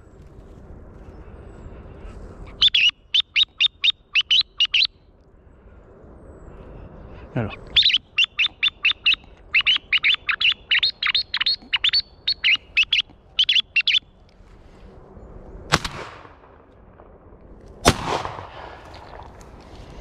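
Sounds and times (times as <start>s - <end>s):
shotgun shot with echo: 15.7s - 16.4s, 17.8s - 18.9s.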